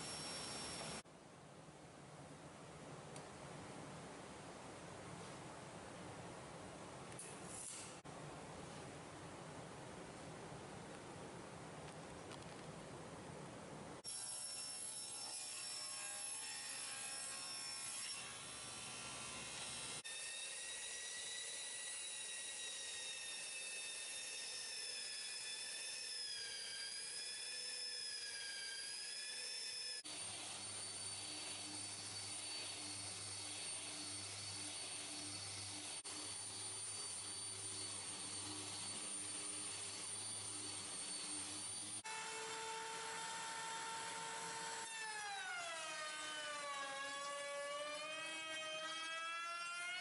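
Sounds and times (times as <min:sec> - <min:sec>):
router table whining: 0:00.0 - 0:01.0, 0:19.4 - 0:50.0.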